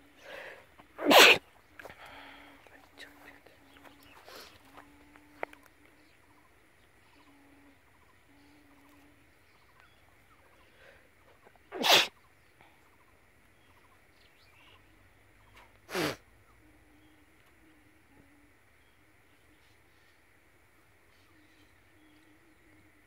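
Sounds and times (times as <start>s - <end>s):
person sneezing: 1.0s - 1.4s, 11.7s - 12.1s, 15.9s - 16.2s.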